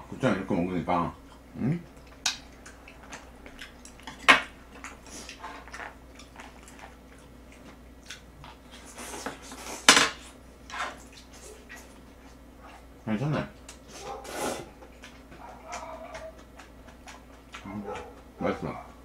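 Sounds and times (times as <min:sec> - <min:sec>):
chopsticks clicking on bowls: 0:15.0 - 0:18.2.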